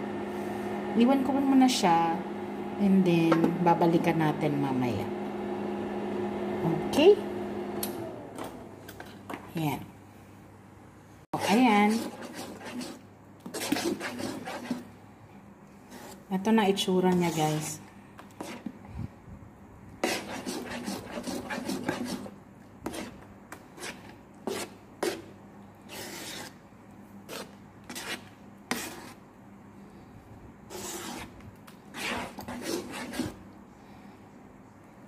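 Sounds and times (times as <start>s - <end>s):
spatula scraping sticky rice: 11.4s - 14.9s, 15.8s - 16.3s, 17.0s - 18.8s, 20.0s - 26.6s, 27.2s - 29.2s, 30.7s - 33.4s.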